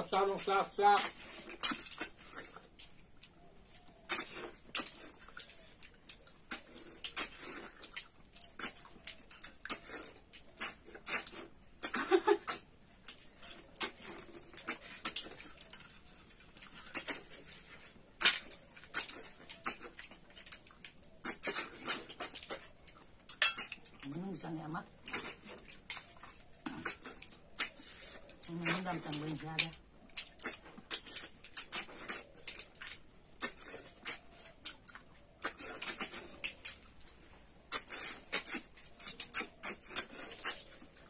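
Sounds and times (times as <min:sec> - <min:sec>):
sucking slurps and smacks: 0:25.0 - 0:41.0.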